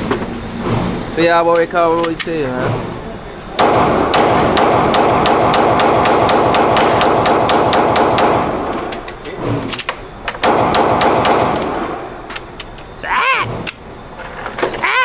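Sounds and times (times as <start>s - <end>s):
handgun shots ringing indoors: 3.6s - 8.9s.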